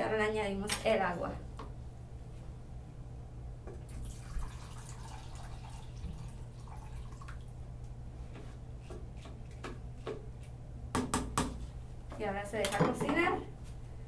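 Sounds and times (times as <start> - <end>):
water pouring and splashing: 3.9 - 7.6.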